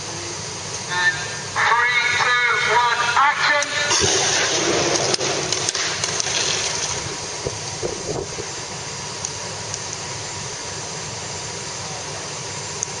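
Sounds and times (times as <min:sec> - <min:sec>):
fire rushing: 0:00.0 - 0:12.9
fire crackling and popping: 0:03.6 - 0:10.2.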